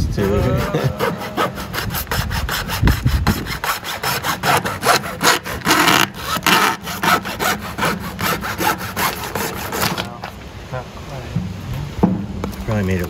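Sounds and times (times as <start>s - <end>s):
hacksaw cutting cardboard tube: 0.0s - 10.3s.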